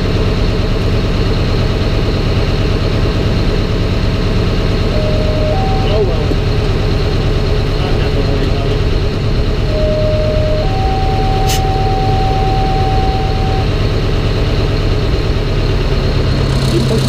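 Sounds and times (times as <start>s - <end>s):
fire truck engine idling: 0.0s - 17.0s
two-tone paging signal: 4.8s - 7.0s, 9.7s - 13.8s
short click: 11.4s - 11.7s.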